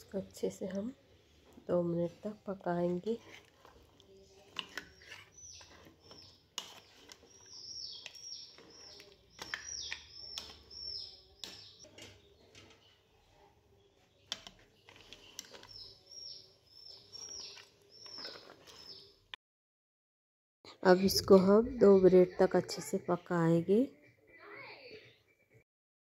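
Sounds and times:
bird chirping: 4.8s - 19.2s.

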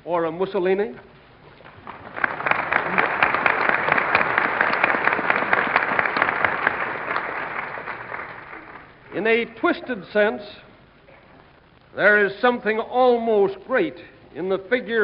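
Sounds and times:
audience applauding: 1.6s - 9.1s.

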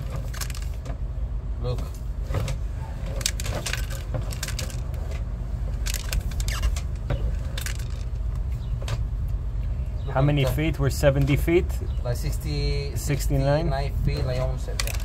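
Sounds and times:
low engine hum: 0.0s - 15.0s
sharp clicks and crackles: 1.8s - 9.4s, 14.7s - 15.0s.

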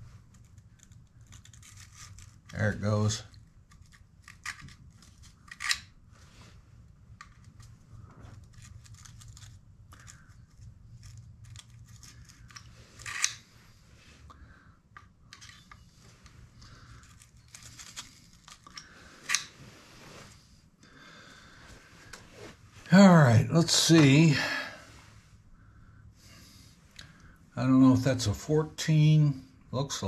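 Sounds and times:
low steady hum: 0.0s - 30.0s
metal hand tools clicking and scraping: 5.4s - 5.8s, 11.0s - 13.4s.

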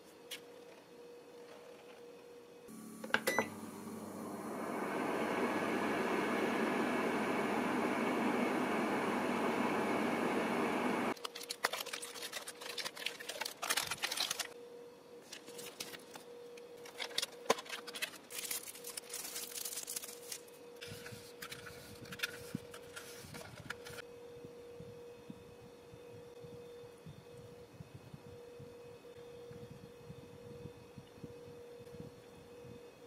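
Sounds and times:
faint steady hum: 0.7s - 11.2s
microwave oven humming: 2.7s - 11.2s
plastic film crinkling: 11.2s - 14.6s, 16.8s - 20.6s.

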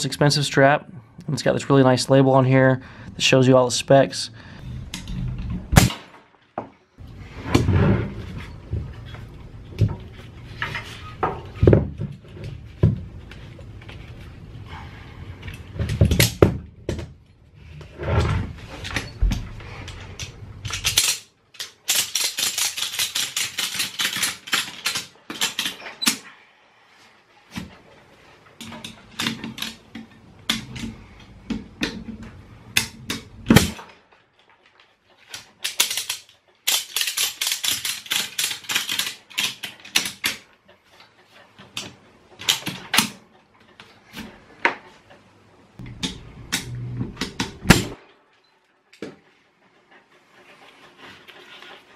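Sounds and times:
ratchet strap clicking: 20.2s - 26.2s, 35.3s - 40.4s.

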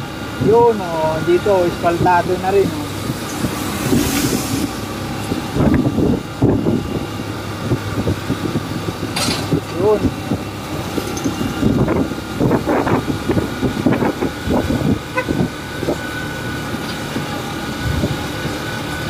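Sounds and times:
motorcycle engine running: 0.0s - 19.0s
wind buffeting microphone: 1.4s - 19.0s.

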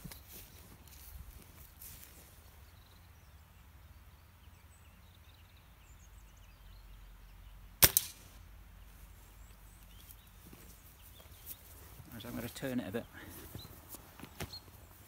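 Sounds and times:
faint birdsong: 0.0s - 15.0s
pellet striking steel target: 7.8s - 8.2s
air rifle shot crack: 7.8s - 8.4s.

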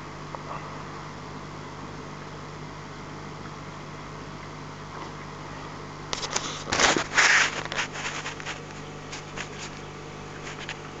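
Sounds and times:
low electrical hum: 0.0s - 11.0s
scraping and crackling noise: 6.1s - 11.0s.

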